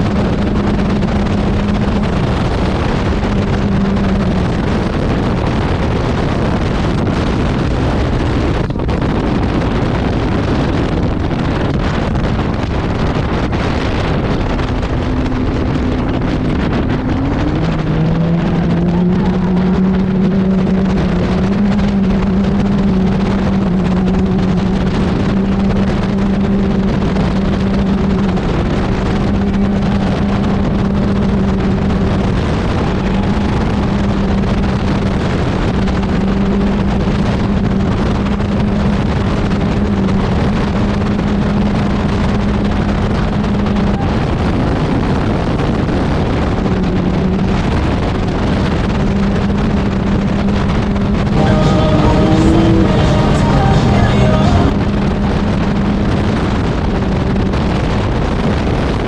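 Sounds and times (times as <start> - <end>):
vehicle engine cruising: 0.0 - 59.0.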